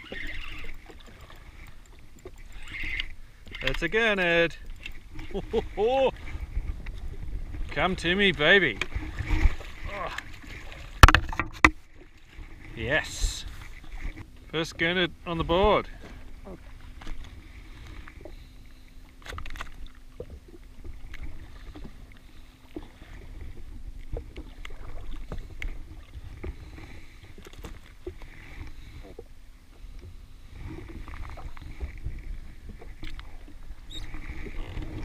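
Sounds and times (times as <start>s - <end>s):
water slapping hull: 0.0s - 35.0s
wind on microphone: 6.1s - 8.0s.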